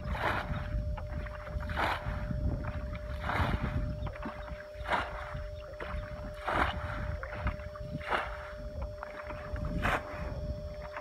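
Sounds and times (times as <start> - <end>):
muddy water splashing: 0.0 - 11.0.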